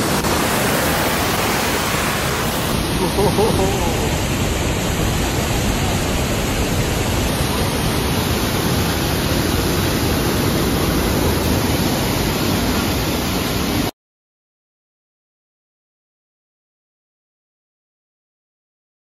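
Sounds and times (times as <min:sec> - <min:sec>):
stream rushing through channel: 0:00.0 - 0:13.9
water gushing from culvert: 0:00.0 - 0:13.9.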